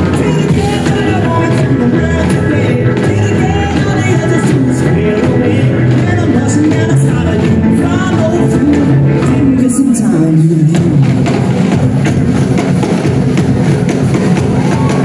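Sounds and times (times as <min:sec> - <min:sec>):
lead vocal singing: 0:00.0 - 0:11.1
rock and roll band playing: 0:00.0 - 0:15.0.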